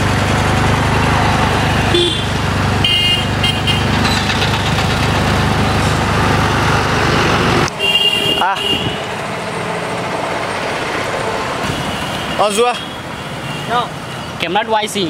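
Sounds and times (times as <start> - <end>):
road noise: 0.0 - 15.0
vehicle engine drone: 0.0 - 15.0
short horn honks: 1.9 - 3.9, 7.8 - 9.0.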